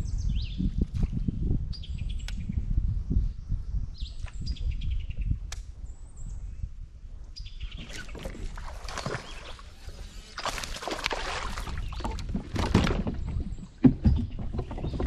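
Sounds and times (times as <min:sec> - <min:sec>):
wind rumble on microphone: 0:00.0 - 0:15.0
songbirds calling: 0:03.4 - 0:15.0
water splashing from kayak: 0:07.8 - 0:15.0.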